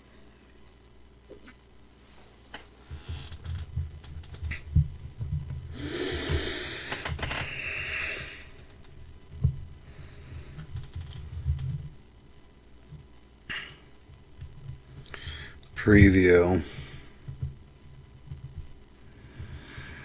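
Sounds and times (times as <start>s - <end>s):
noisy breath or rustle: 1.9s - 4.7s, 5.7s - 9.0s, 9.8s - 11.8s, 14.9s - 15.7s, 16.6s - 17.4s, 19.0s - 20.0s
microphone handling bumps: 2.9s - 7.4s.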